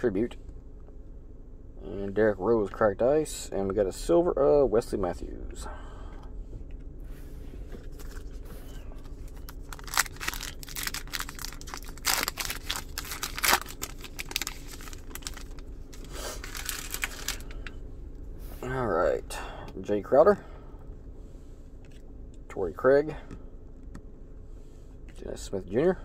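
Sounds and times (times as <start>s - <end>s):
foil pack tearing and crinkling: 9.1s - 17.7s.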